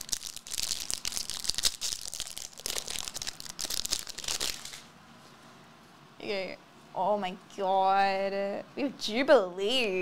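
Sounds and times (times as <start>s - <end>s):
foil wrapper crinkling: 0.0s - 4.9s.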